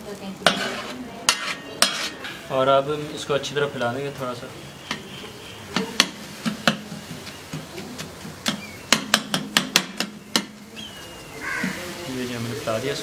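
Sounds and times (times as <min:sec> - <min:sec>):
faint sizzle: 0:00.0 - 0:13.0
metal spatulas clacking on griddle: 0:00.4 - 0:02.4, 0:05.7 - 0:10.7.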